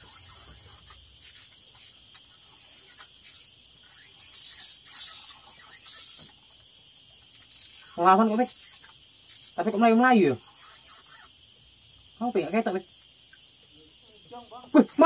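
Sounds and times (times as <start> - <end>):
fishing reel cranking: 0.0 - 6.5, 7.2 - 11.4
insects buzzing: 0.0 - 15.0.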